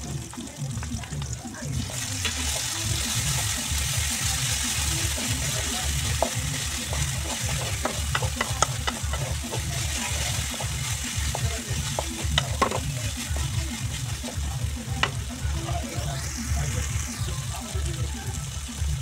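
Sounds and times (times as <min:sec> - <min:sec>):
vegetables sizzling in oil: 0:00.0 - 0:19.0
spatula scraping a pan: 0:04.7 - 0:14.4.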